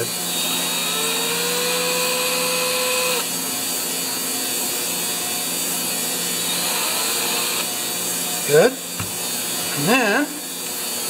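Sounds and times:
cordless drill whining: 0:00.0 - 0:11.0.

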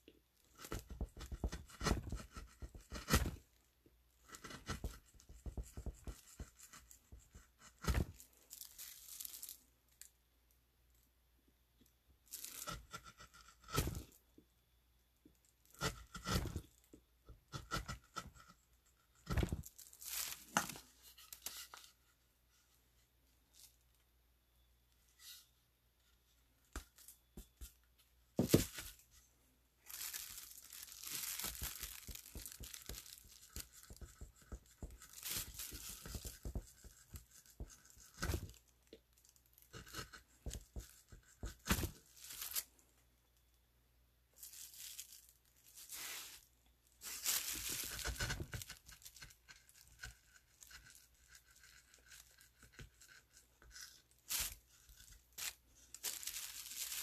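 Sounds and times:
plastic sheet crinkling: 0:08.0 - 0:09.7, 0:19.3 - 0:21.8, 0:29.8 - 0:38.6, 0:41.7 - 0:42.7, 0:44.4 - 0:49.8, 0:54.2 - 0:54.6, 0:55.3 - 0:57.0.

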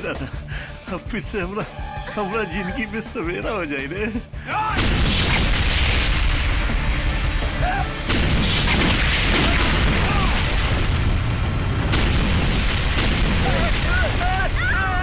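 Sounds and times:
dramatic background score: 0:00.0 - 0:15.0
explosion booms with deep rumble: 0:04.7 - 0:15.0.

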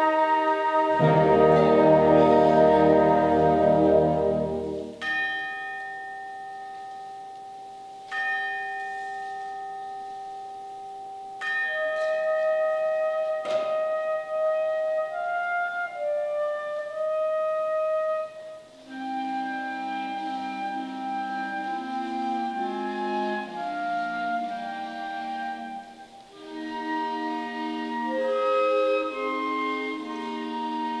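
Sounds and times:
solo flute melody: 0:00.0 - 0:05.1, 0:09.9 - 0:31.0
tubular bells ringing: 0:00.9 - 0:13.4.

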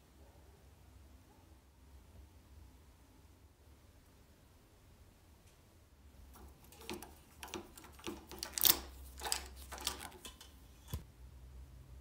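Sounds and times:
moped lever and cable clicking: 0:06.4 - 0:11.0.

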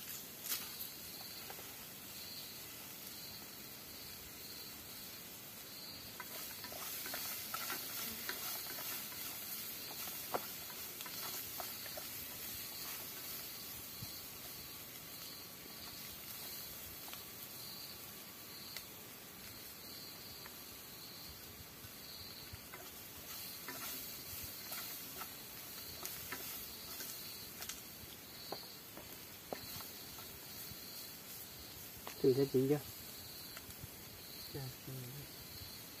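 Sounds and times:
fire pops and crackles: 0:00.0 - 0:36.0
food sizzling over fire: 0:00.0 - 0:36.0.

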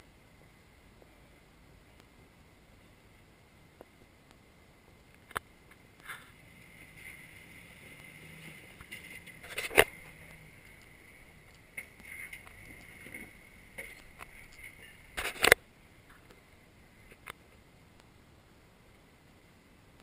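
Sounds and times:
faint engine hum: 0:05.5 - 0:17.9.

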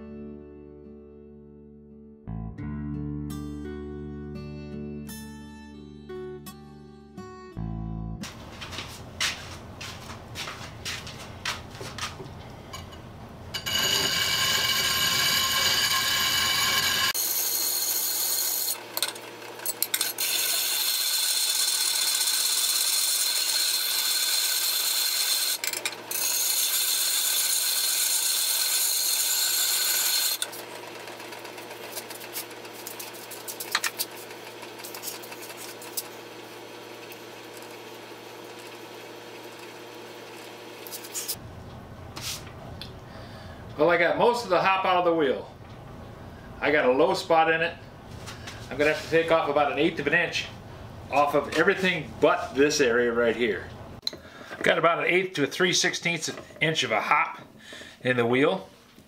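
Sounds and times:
angle grinder grinding stone: 0:13.5 - 0:41.4.

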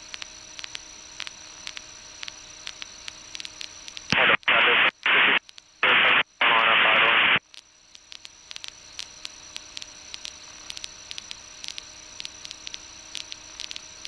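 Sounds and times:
faint steady hum: 0:00.0 - 0:14.0
static hiss with crackles: 0:00.0 - 0:14.0
radio voice transmission: 0:04.1 - 0:07.4.

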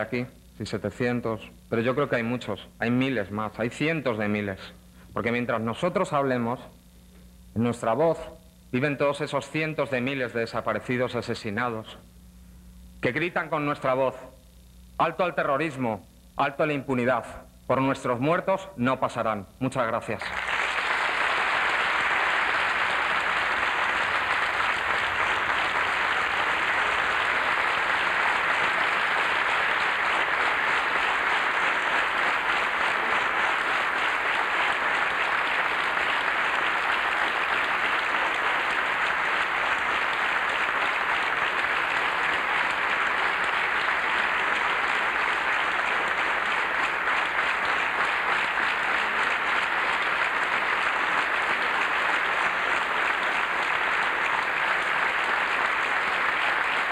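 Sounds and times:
large audience applauding: 0:20.2 - 0:56.9.

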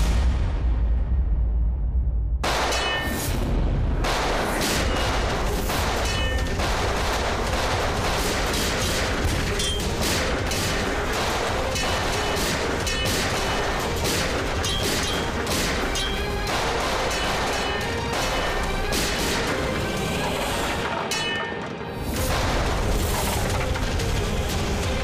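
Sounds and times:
pistol gunfire: 0:02.4 - 0:03.2, 0:04.0 - 0:19.8.

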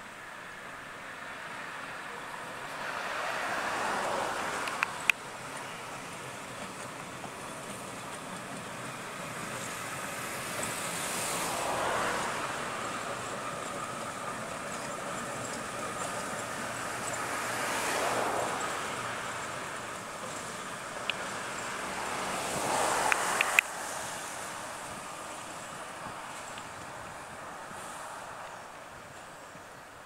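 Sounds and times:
diesel locomotive engine and wheels: 0:00.0 - 0:30.0
sharp clicks: 0:23.1 - 0:23.7.

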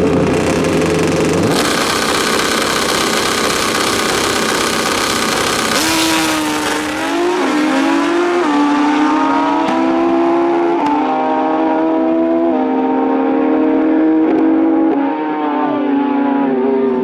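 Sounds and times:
racing motorcycles revving: 0:00.0 - 0:17.0.

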